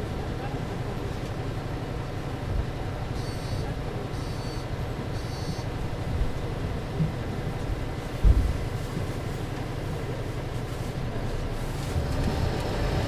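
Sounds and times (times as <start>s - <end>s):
bus engine running: 0.0s - 13.0s
short high beeps: 3.2s - 3.6s, 4.2s - 4.6s, 5.2s - 5.7s
heavy thump: 8.2s - 8.7s.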